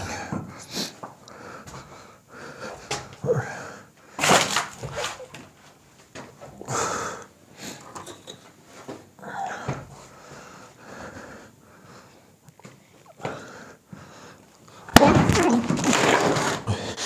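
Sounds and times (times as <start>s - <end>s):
heavy wheezy breathing: 0.0s - 4.2s, 6.6s - 8.0s, 9.2s - 14.9s, 16.6s - 17.0s.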